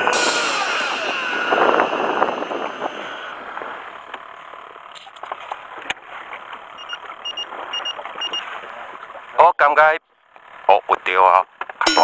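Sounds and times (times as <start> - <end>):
wind and sea hiss: 0.0 - 4.9
short electronic double beeps: 6.8 - 8.4.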